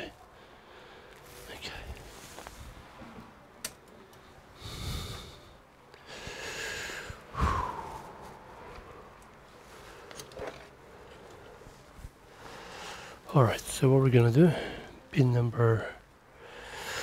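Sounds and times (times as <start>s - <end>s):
man breathing and sniffing: 4.2s - 13.3s, 16.3s - 17.0s.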